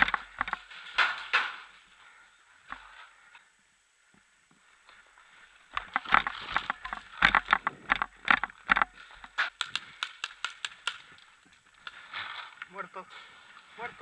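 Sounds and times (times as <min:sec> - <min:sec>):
footsteps crunching on rubble: 0:04.6 - 0:14.0
sharp clicks: 0:05.7 - 0:12.0
gear knocking against camera: 0:05.8 - 0:11.1.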